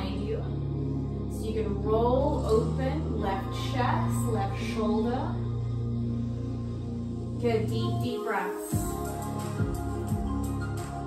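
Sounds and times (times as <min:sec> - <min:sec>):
instrumental music with soft beat: 0:02.3 - 0:11.0.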